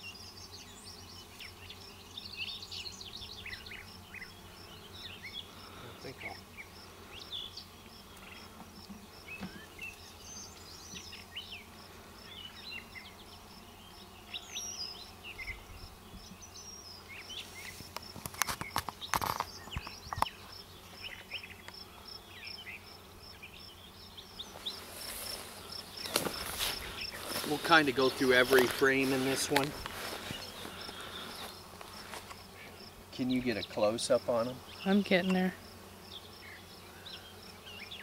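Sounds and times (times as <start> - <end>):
birds chirping: 0.0 - 38.0
honeybees buzzing: 0.0 - 38.0
insect chirping in steady pulse: 0.0 - 38.0
wooden hive frame knocks and scrapes: 8.5 - 9.9, 17.3 - 20.3, 24.4 - 32.6.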